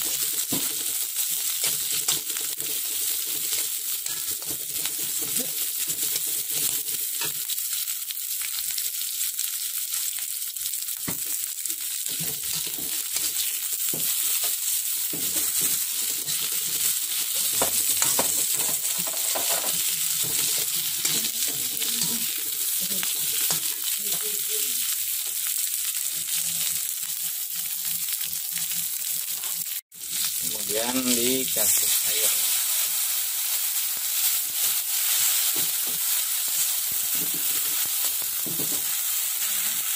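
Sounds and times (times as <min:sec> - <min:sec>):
food sizzling in hot oil: 0:00.0 - 0:39.9
metal spatula scraping pan: 0:03.5 - 0:05.3, 0:14.4 - 0:23.8.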